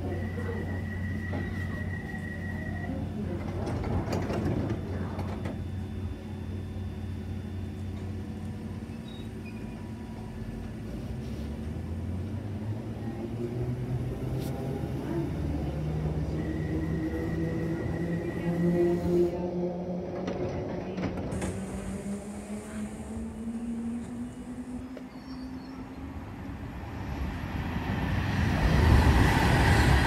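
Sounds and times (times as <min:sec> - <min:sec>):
train doors shutting: 0:00.0 - 0:06.3, 0:20.0 - 0:27.4
train humming: 0:09.8 - 0:30.0
train motor rising: 0:21.3 - 0:25.2.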